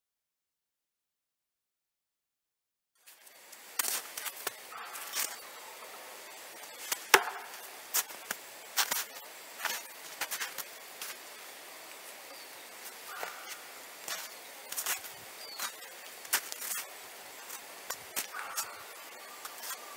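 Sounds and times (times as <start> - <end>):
knife striking tree trunk: 7.0 - 7.6.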